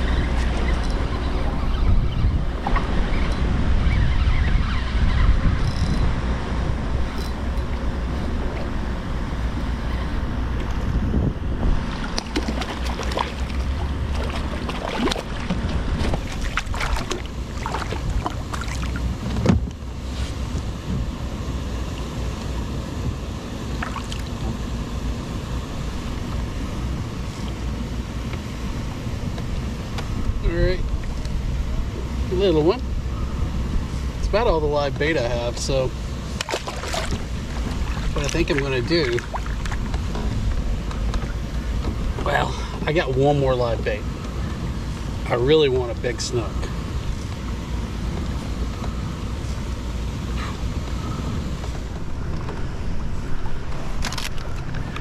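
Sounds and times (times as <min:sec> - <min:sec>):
wind buffeting microphone: 0:00.0 - 0:21.4
water lapping against kayak: 0:11.8 - 0:21.0, 0:36.2 - 0:42.3
fish thrashing and splashing: 0:11.9 - 0:19.1, 0:36.4 - 0:40.0.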